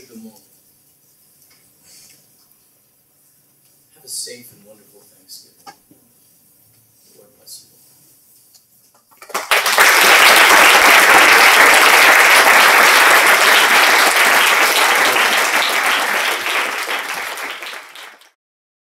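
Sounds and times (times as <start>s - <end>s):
audience applauding: 9.3s - 18.4s.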